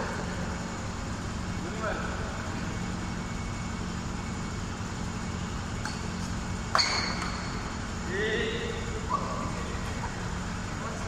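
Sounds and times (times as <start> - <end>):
steady low hum: 0.0 - 11.0
racket striking shuttlecock: 5.8 - 7.7.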